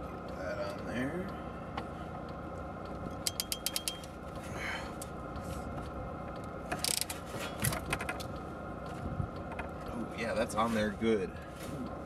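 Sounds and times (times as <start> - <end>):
tool rattling: 3.2 - 4.1
ratcheting crimping tool clicking: 3.2 - 4.2, 6.7 - 8.4.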